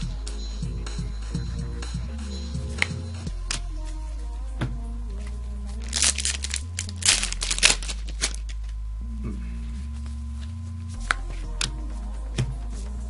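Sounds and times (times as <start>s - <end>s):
foil wrappers crinkling: 5.8s - 8.8s.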